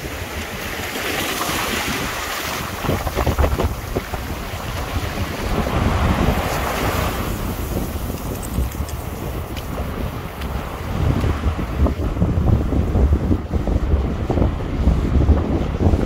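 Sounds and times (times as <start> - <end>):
small waves washing on beach: 0.0 - 16.0
wind buffeting microphone: 0.0 - 16.0.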